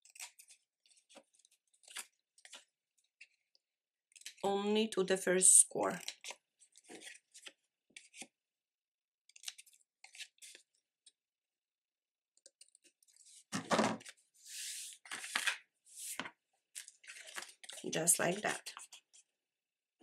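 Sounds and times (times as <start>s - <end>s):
hand brushing across cutting mat: 14.5s - 15.0s.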